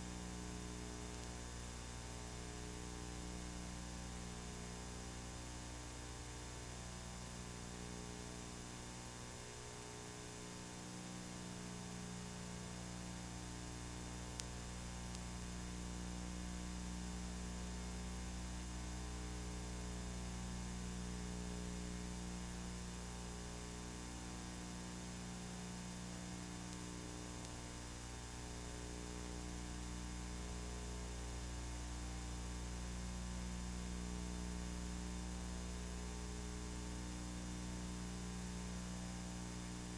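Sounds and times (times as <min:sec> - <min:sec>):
electrical mains hum: 0:00.0 - 0:39.9
static hiss: 0:00.0 - 0:39.9
faint click: 0:01.1 - 0:01.4, 0:14.3 - 0:15.3, 0:26.6 - 0:27.6.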